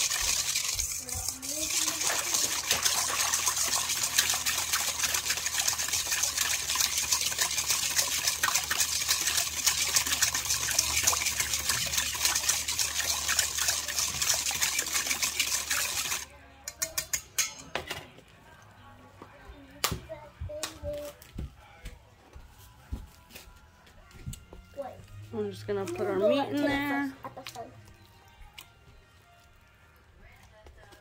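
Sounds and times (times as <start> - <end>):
whisk beating liquid in metal bowl: 0.0 - 17.5.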